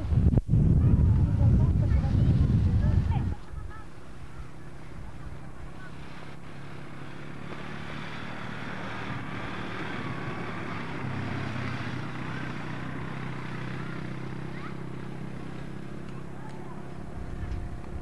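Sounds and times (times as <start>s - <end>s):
quad bike engine running: 0.0s - 18.0s.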